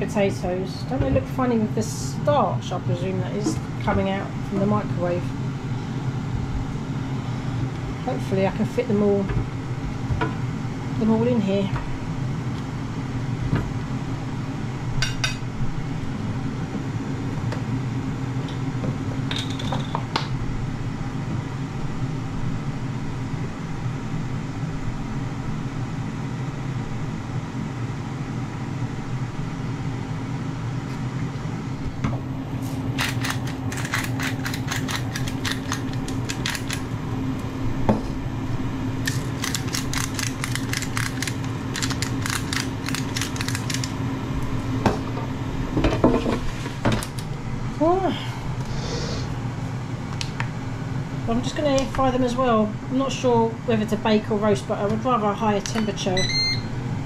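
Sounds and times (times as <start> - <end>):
air fryer fan humming: 0.0 - 57.0
hand grinder clicking: 39.1 - 43.9.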